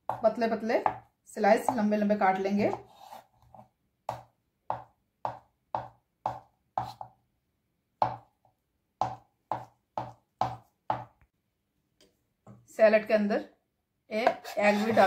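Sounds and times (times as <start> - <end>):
knife tapping on wooden board: 4.1 - 7.1, 8.0 - 8.3, 9.0 - 11.2.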